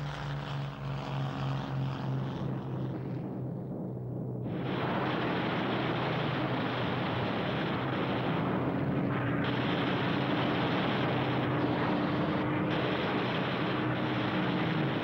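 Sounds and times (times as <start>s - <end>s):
propeller aircraft engines droning: 0.0s - 15.0s.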